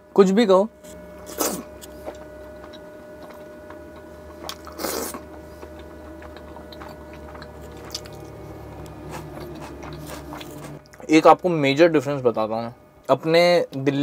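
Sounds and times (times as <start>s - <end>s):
low hum: 0.0s - 14.0s
chewing and biting: 0.9s - 11.1s.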